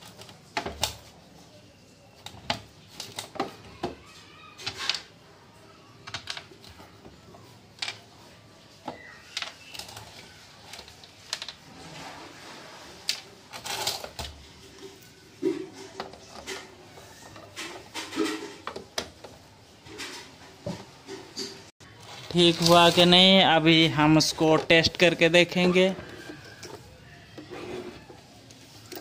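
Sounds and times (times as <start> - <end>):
plastic parts clicking and knocking: 0.0 - 1.1, 2.1 - 5.2, 6.0 - 11.7, 13.1 - 23.0
scraping: 8.9 - 29.0.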